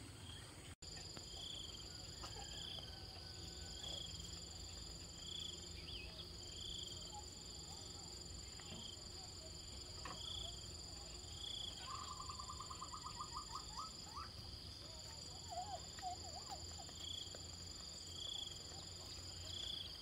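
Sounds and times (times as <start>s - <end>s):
insects droning: 0.0s - 20.0s
short wavering calls: 11.6s - 17.0s.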